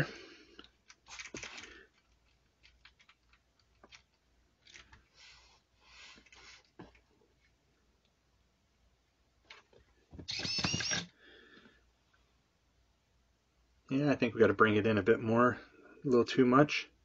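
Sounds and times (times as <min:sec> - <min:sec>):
soft rustles of handling: 0:00.5 - 0:08.2.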